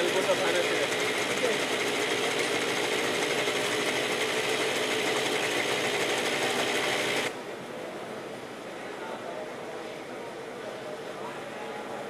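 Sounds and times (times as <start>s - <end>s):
two-stroke engine buzzing: 0.0s - 7.3s.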